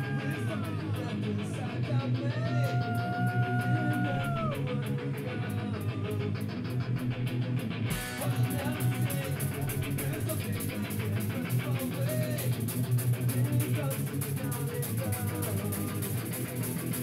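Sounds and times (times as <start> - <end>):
person singing: 0.0 - 6.9, 7.9 - 16.5
bass guitar: 0.0 - 17.0
electric guitars: 0.0 - 17.0
drums and cymbals: 7.9 - 17.0.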